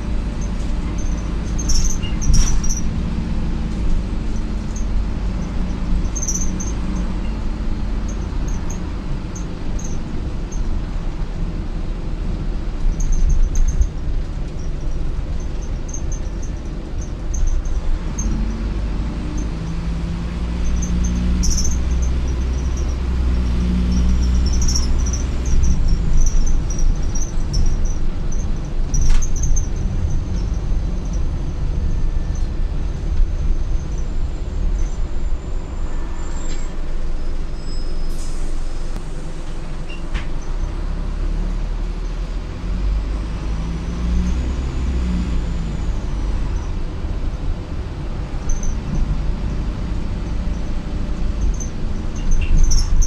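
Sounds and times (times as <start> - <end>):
bus engine and road rumble: 0.0 - 53.0
interior squeaks and clicks: 0.2 - 10.7, 12.8 - 40.8, 48.4 - 53.0
short hiss: 38.1 - 39.4.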